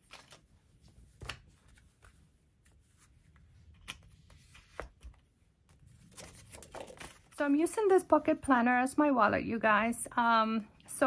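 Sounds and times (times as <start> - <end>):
paper pages rustling: 0.0 - 8.3.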